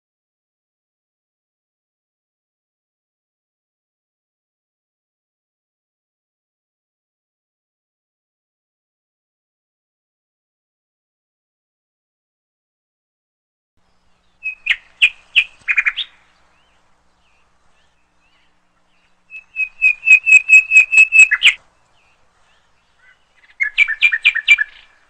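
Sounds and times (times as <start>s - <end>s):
bird chirping: 13.8s - 25.0s.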